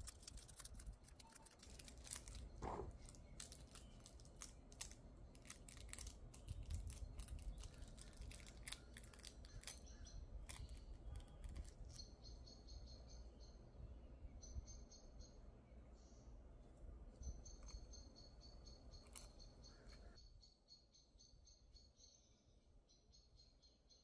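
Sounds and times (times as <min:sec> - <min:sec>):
foil and gloves crinkling: 0:00.0 - 0:09.8.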